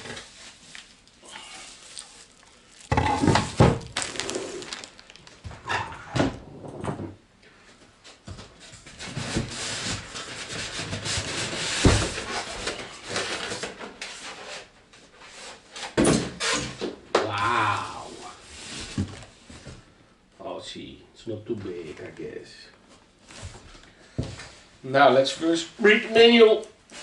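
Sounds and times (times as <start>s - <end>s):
foam pieces squeaking: 0.0s - 5.5s
plastic bag rustling: 0.0s - 5.9s
knocks against cardboard box: 11.8s - 12.3s.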